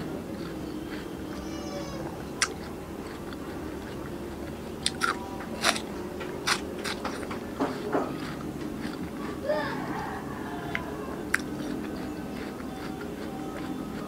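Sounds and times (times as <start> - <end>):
crunching bites of watermelon: 2.4 - 9.3, 10.7 - 14.0.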